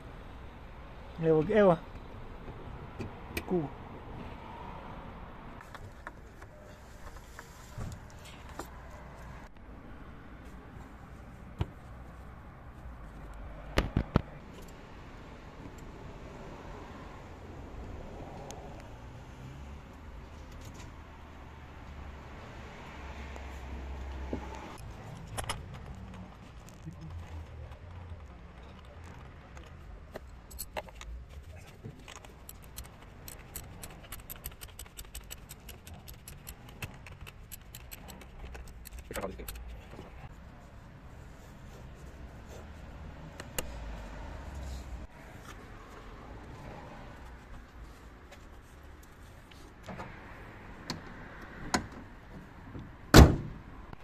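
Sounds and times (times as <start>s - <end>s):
ratchet wrench clicking: 32.1s - 39.7s
car bonnet slamming shut: 53.1s - 53.6s.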